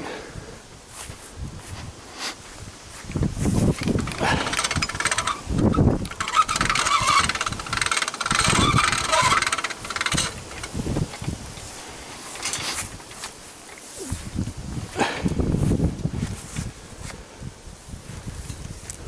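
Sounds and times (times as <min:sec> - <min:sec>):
metal cart rattling and clanking: 0:03.7 - 0:13.0.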